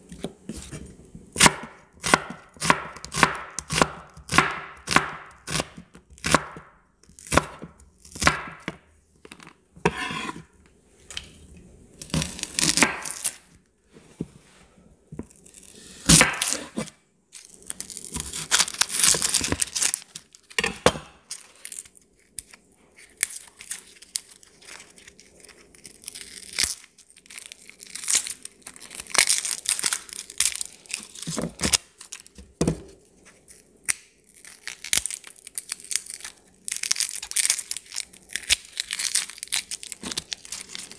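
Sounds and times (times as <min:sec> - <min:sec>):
knife cutting onion on wooden board: 0:00.1 - 0:08.8, 0:09.8 - 0:10.5, 0:12.0 - 0:13.4, 0:15.7 - 0:16.9
onion skin peeling rustle: 0:12.0 - 0:13.5, 0:15.4 - 0:20.6, 0:21.3 - 0:32.4, 0:33.2 - 0:40.9.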